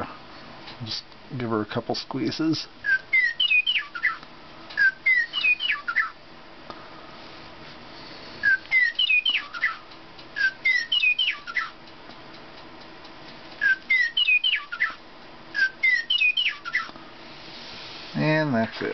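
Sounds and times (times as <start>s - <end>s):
toy bird whistled song: 2.8s - 4.2s, 4.8s - 6.2s, 8.4s - 11.8s, 13.6s - 16.9s.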